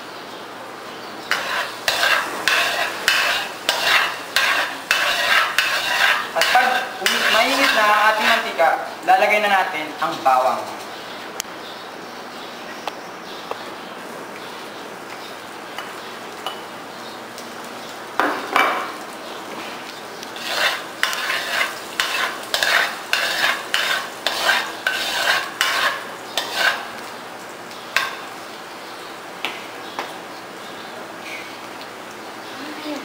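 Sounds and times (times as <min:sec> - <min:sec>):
garlic sizzling in hot oil: 0:01.2 - 0:11.0, 0:14.0 - 0:33.0
metal ladle scraping a pan: 0:01.3 - 0:08.6, 0:20.4 - 0:27.0.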